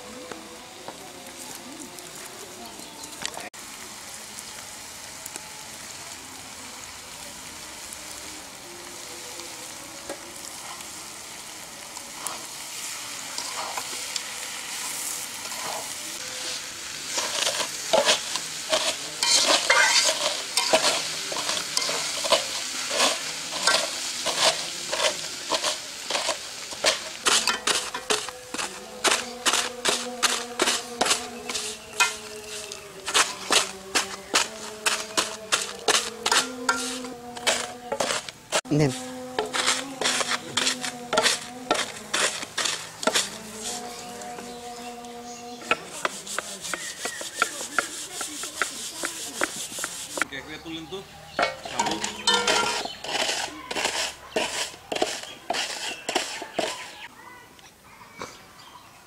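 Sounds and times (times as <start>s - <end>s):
food sizzling in a pan: 0.0s - 57.3s
metal spatula scraping a pan: 12.1s - 50.3s, 51.4s - 57.1s.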